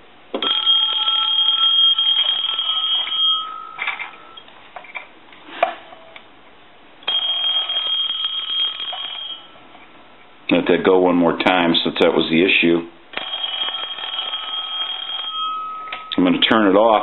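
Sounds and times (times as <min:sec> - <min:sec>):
mechanical telephone bell ringing: 0:00.4 - 0:04.5, 0:07.0 - 0:09.6, 0:13.1 - 0:16.5.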